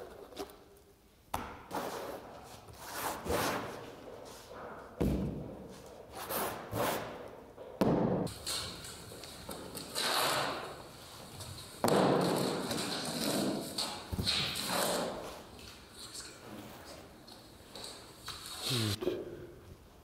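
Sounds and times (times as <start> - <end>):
tool scraping paint on canvas: 8.3 - 19.0.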